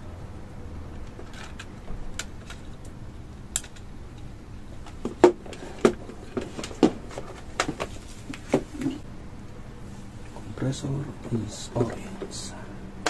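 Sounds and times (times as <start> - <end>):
plastic and wire clicking: 1.0 - 8.5.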